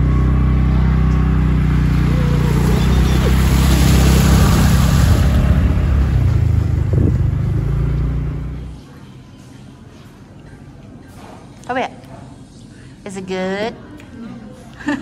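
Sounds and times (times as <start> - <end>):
wheels splashing water: 0.0 - 8.6
scooter engine running: 0.0 - 8.8.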